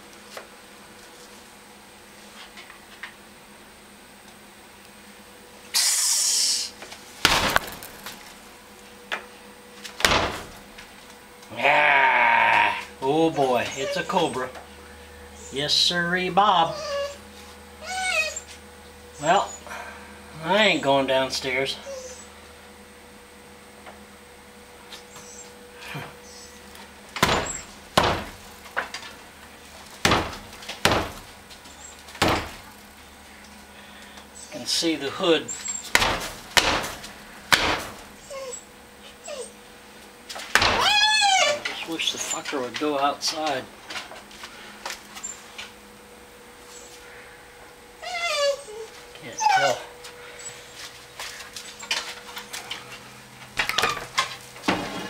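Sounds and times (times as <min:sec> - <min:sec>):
snake hissing: 0:05.7 - 0:06.8
dull knocks: 0:27.2 - 0:28.4, 0:30.0 - 0:31.3, 0:32.2 - 0:32.6
footsteps thudding on wooden stairs: 0:27.2 - 0:28.4, 0:30.0 - 0:31.3.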